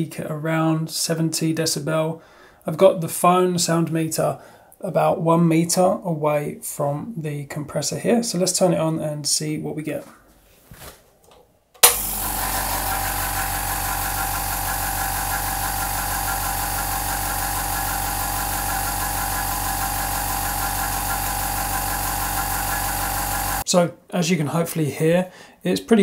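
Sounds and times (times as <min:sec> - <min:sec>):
air compressor running: 0:11.8 - 0:23.6.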